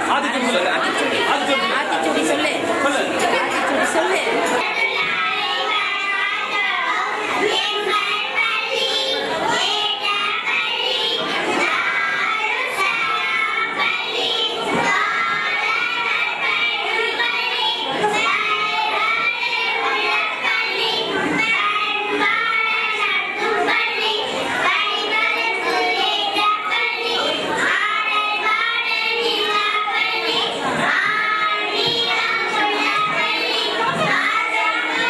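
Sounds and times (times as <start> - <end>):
girls singing in unison: 3.5 - 35.0.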